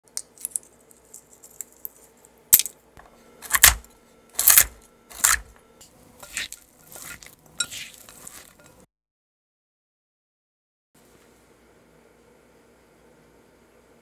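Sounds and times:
knife chopping on board: 3.4s - 5.5s
stirring in glass bowl: 6.2s - 8.8s.

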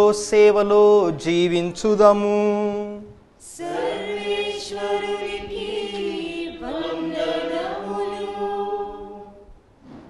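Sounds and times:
voices singing unaccompanied chant: 3.4s - 9.5s.

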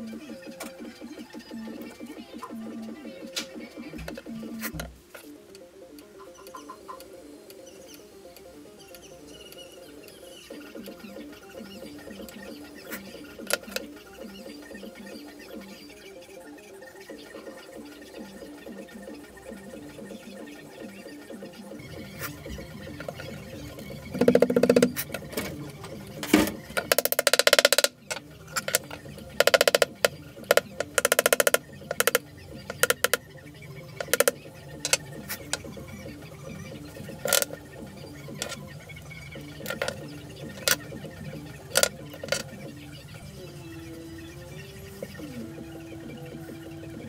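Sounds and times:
small hammer tapping metal pins: 24.1s - 25.5s, 26.2s - 33.2s, 34.0s - 35.7s, 37.2s - 37.6s, 39.6s - 40.0s.

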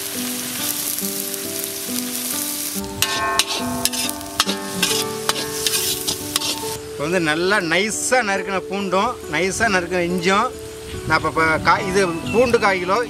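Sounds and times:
background music: 0.0s - 13.0s
onions sizzling in oil: 0.0s - 13.0s
ladle scraping and knocking pan: 3.0s - 6.8s.

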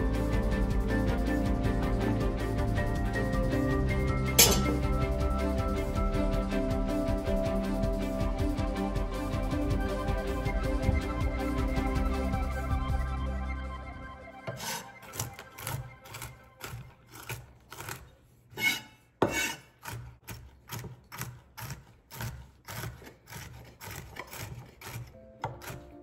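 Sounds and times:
background music: 0.0s - 17.6s, 23.9s - 26.0s
knife chopping on wooden board: 14.5s - 26.0s.

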